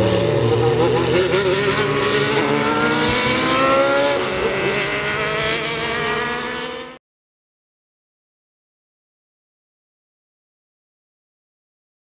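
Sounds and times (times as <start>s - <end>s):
racing car engine accelerating: 0.0s - 7.0s.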